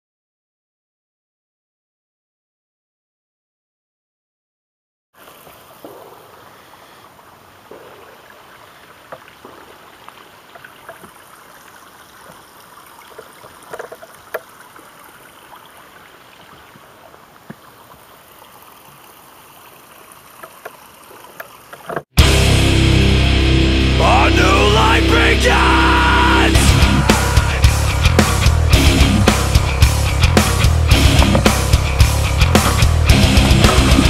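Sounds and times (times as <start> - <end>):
water running and trickling: 5.2 - 22.2
small clicks and crackles: 13.1 - 14.8.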